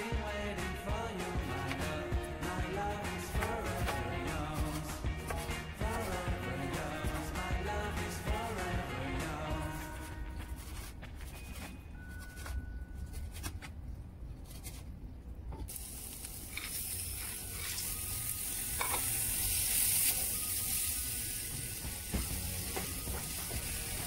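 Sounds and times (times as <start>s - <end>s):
knife chopping on cutting board: 3.3s - 6.3s
potatoes sizzling in oil: 15.7s - 24.0s.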